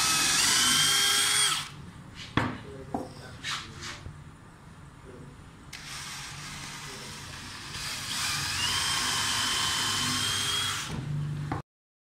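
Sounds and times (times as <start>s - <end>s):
cordless drill boring into wood: 0.0s - 1.7s, 5.7s - 11.0s.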